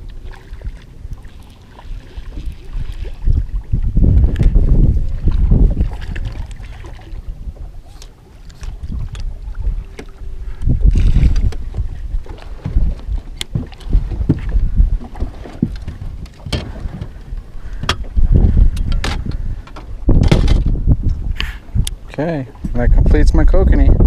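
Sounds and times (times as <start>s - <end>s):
wind buffeting microphone: 0.0s - 24.0s
sharp knocks and clicks: 18.8s - 21.2s.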